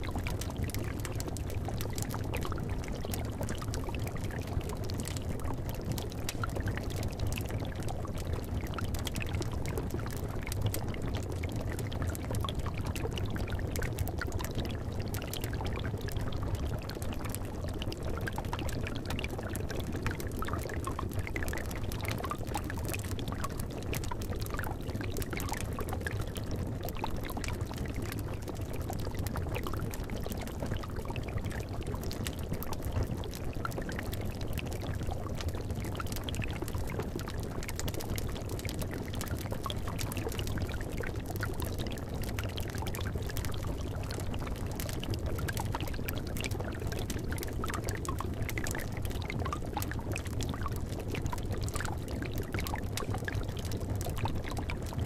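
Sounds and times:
liquid bubbling: 0.0 - 55.0
small pops and crackles: 0.0 - 55.0.

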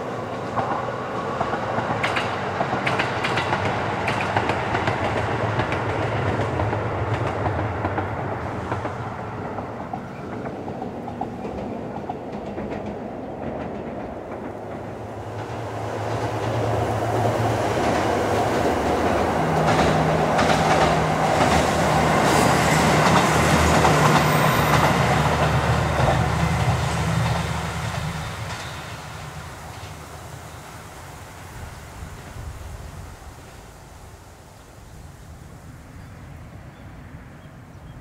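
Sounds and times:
diesel railcar engine: 0.0 - 33.7
train wheels clacking: 0.4 - 30.1.

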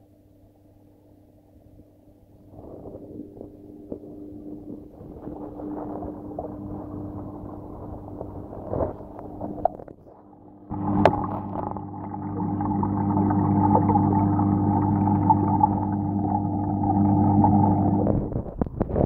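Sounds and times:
water pump hum: 2.1 - 18.9
camera rustling among plants: 3.2 - 10.2.

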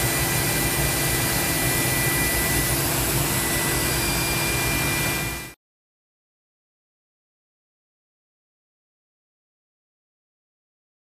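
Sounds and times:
faint high whine: 0.0 - 5.6
whooshing machinery: 0.0 - 5.6.

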